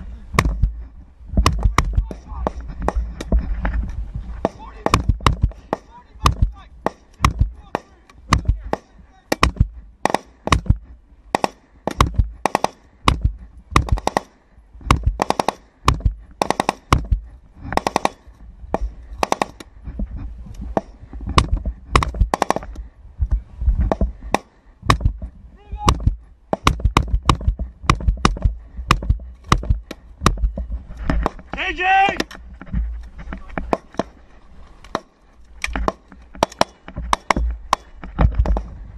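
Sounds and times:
rifle fire echoing: 4.4s - 17.2s, 17.8s - 19.6s, 21.4s - 22.7s.

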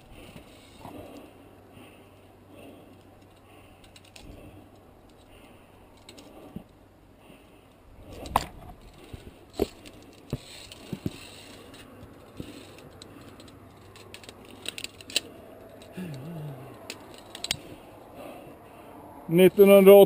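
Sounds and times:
carabiners clinking on steel cable: 2.9s - 5.3s, 8.2s - 17.9s.

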